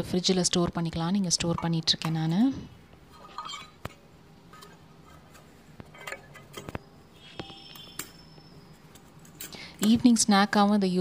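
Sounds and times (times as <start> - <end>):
metallic ring: 6.0 - 9.6.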